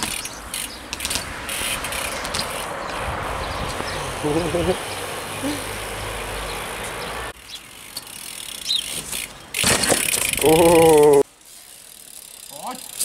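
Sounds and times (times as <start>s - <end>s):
bike landing with clattering impacts: 0.0s - 3.1s, 6.9s - 11.2s
bike tyres rolling on concrete: 0.0s - 13.0s.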